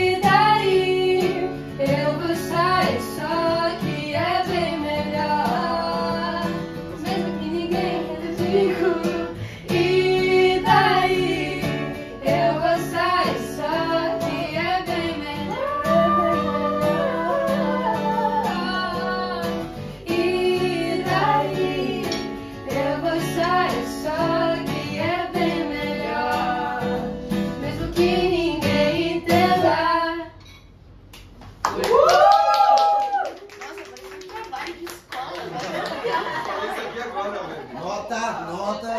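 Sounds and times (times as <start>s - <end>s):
women singing pop song: 0.0s - 30.5s
strummed acoustic guitar: 0.0s - 30.6s.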